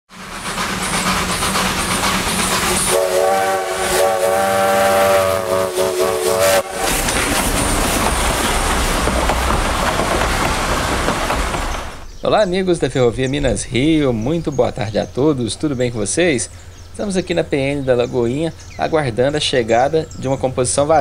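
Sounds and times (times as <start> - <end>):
freight train rumbling: 0.1 - 21.0
locomotive air horn: 2.8 - 7.0.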